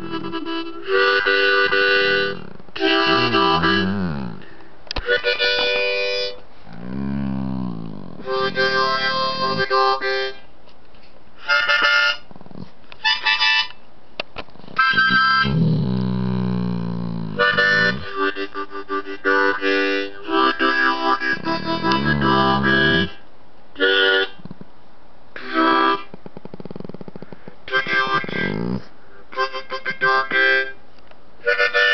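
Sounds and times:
harmonica chords: 0.0 - 10.4, 14.7 - 23.2
dog howling: 2.0 - 4.5, 6.7 - 9.6, 14.8 - 18.2.

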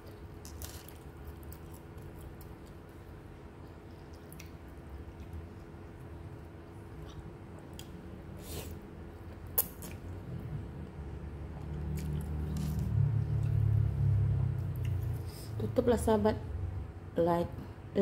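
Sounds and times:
low chewing rumble: 0.0 - 16.1.

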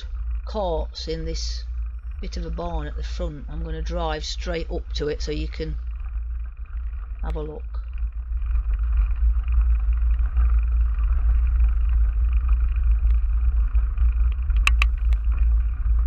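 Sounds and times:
wind and riding rumble: 0.0 - 16.0
sharp clicks: 14.5 - 15.2.

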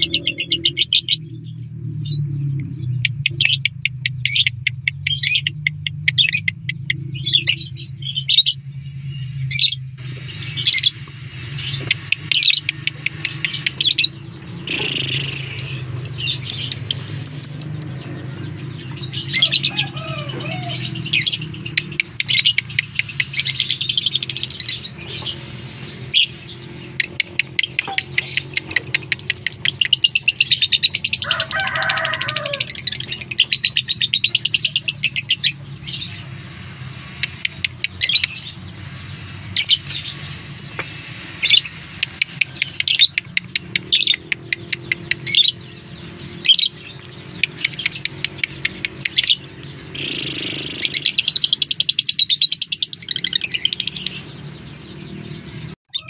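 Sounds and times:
sharp bird chirps: 0.0 - 56.0
lovebird chattering trills: 41.5 - 56.0.

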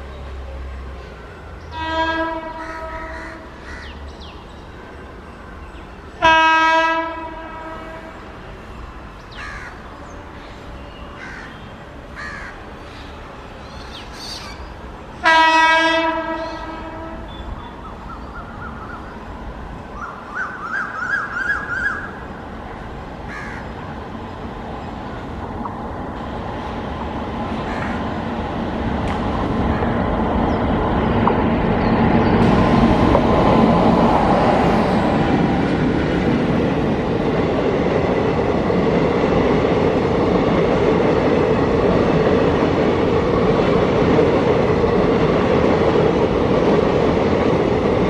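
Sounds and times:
locomotive horn blasts: 1.7 - 3.1, 6.2 - 8.4, 15.2 - 17.5
crows cawing: 2.6 - 4.0, 9.4 - 9.8, 11.2 - 11.6, 12.2 - 13.1, 20.0 - 22.2, 23.3 - 23.7, 27.7 - 28.0
train rumble: 21.3 - 48.0.

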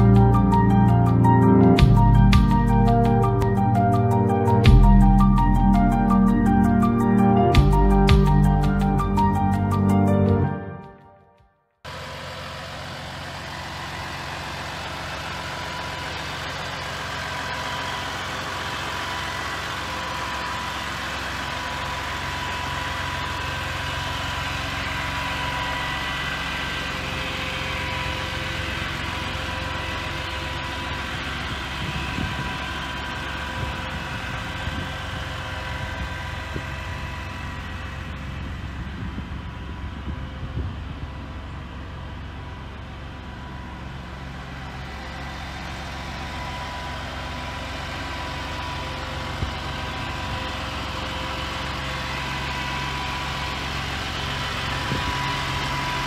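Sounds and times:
diesel engine idling: 0.0 - 11.0, 11.8 - 56.0
high hydraulic whine: 11.9 - 56.0.

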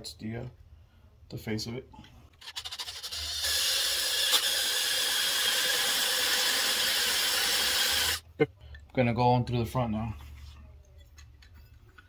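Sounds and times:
drill bit scraping through metal: 2.4 - 8.2.

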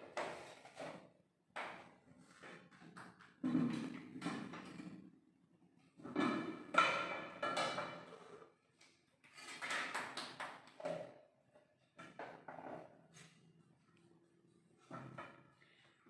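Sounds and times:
utensils and pots clattering: 6.0 - 8.4, 9.2 - 10.2.

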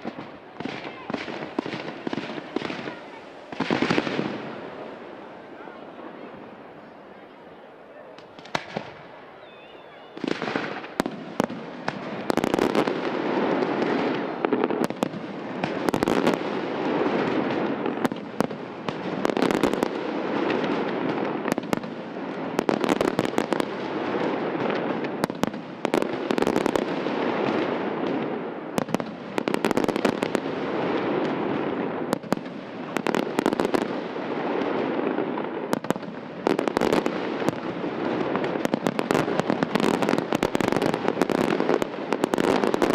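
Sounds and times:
fireworks bursts and crackling: 0.0 - 42.9.

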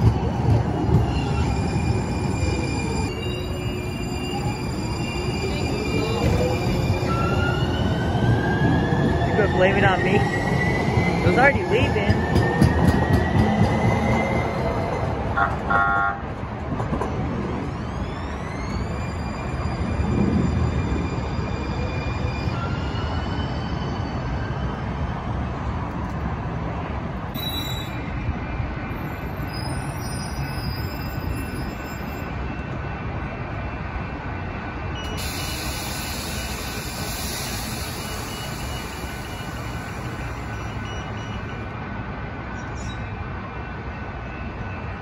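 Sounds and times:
light-rail trolley rumbling on tracks: 0.0 - 45.0
faint wheel squeal: 27.4 - 28.1, 29.2 - 32.2.

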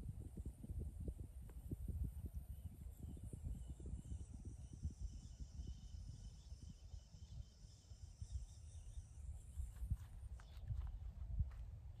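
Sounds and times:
crickets chirring: 2.7 - 11.2.

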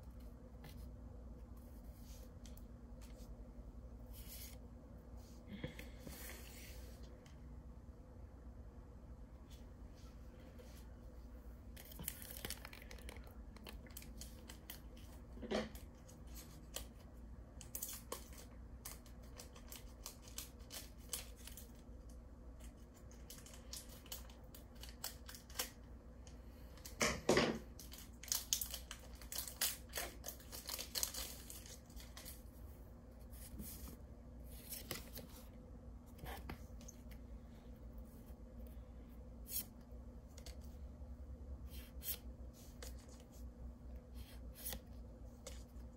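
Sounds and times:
cards rustling and clicking: 11.7 - 17.0
foil wrapper crinkling and tearing: 11.8 - 15.0, 23.0 - 25.8, 27.8 - 32.4.

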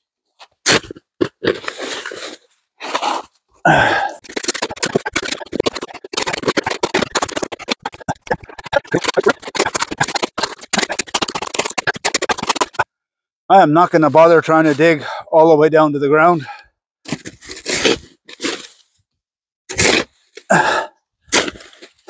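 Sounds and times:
shovel digging in crusty snow: 0.4 - 12.8, 17.1 - 18.9, 19.7 - 20.4, 21.3 - 22.0.

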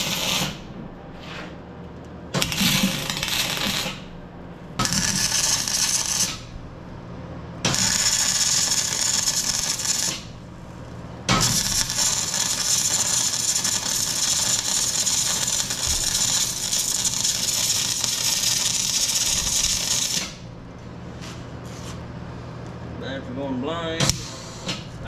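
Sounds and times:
arc welding crackling sizzle: 0.0 - 0.7, 2.4 - 4.2, 4.8 - 6.5, 7.6 - 10.4, 11.3 - 20.5.

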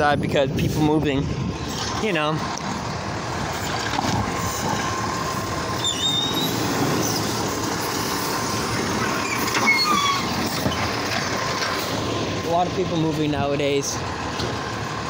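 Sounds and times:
truck engine running: 0.0 - 15.0
metal arm squealing: 5.8 - 7.4, 9.0 - 10.9.

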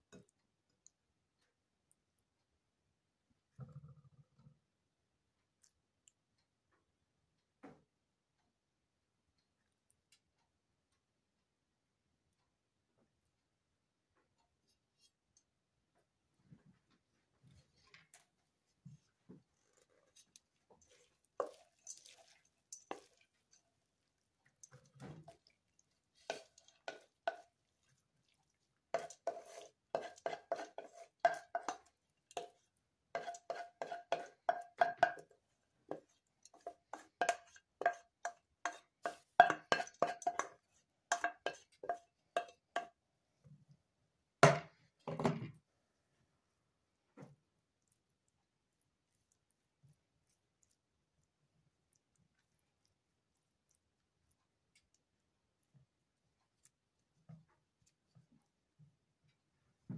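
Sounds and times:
metal utensil clinking on cookware: 36.5 - 42.9.

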